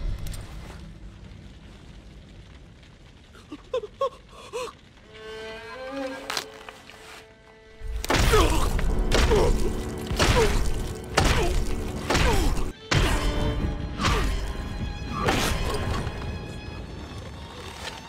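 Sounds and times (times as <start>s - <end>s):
background music: 5.0s - 18.0s
heavy stabbing thuds: 7.8s - 13.4s.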